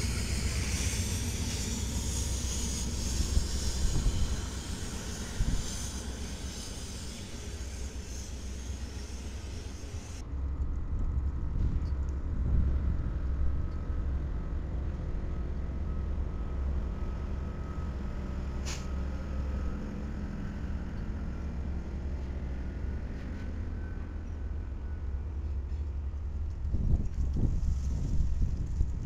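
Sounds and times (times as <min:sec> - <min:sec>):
diesel locomotive rumble: 0:00.0 - 0:29.0
short hiss: 0:18.6 - 0:18.9.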